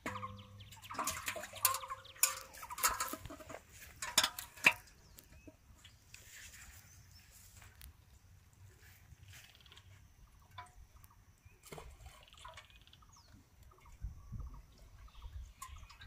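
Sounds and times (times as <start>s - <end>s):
knocks against metal pot: 0.0s - 4.9s.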